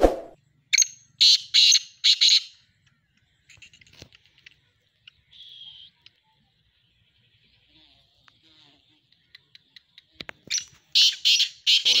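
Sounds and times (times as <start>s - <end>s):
francolin calling: 5.0s - 6.2s.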